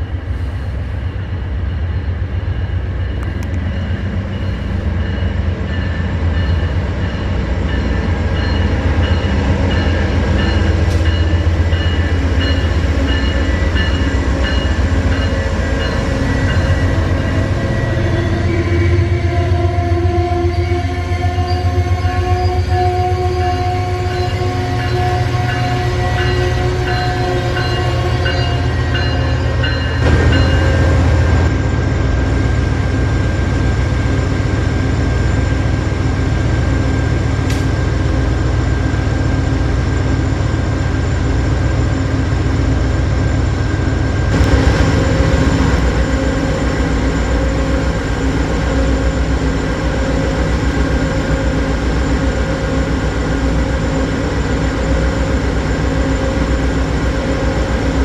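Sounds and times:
diesel locomotive rumble: 0:00.0 - 0:58.0
steady whine: 0:27.6 - 0:58.0.

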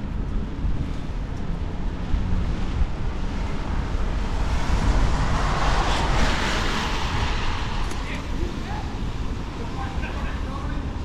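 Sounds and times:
low rumble: 0:00.0 - 0:10.0
wind buffeting microphone: 0:00.0 - 0:11.0
traffic hiss on wet road: 0:03.3 - 0:11.0.

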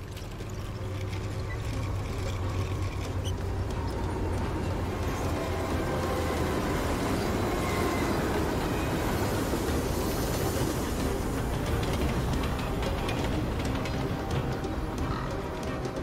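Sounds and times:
passenger train passing: 0:00.0 - 0:16.0.

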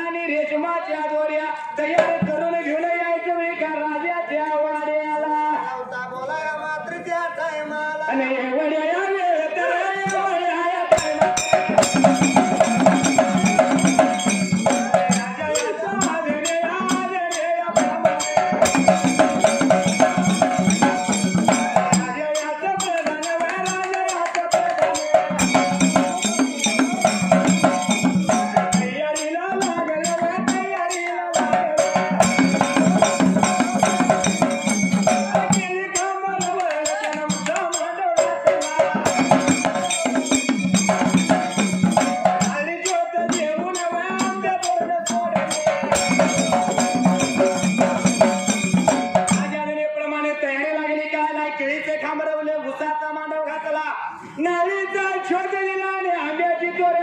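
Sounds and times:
men singing: 0:00.0 - 0:52.3
dhol drum: 0:01.8 - 0:02.7, 0:09.9 - 0:50.0
hand cymbals: 0:10.9 - 0:49.6.

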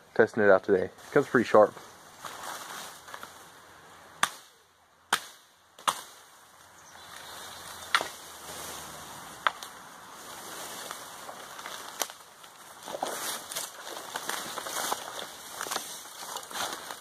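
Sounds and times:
axe chopping bamboo: 0:04.2 - 0:04.5, 0:05.1 - 0:06.2, 0:07.9 - 0:08.2.

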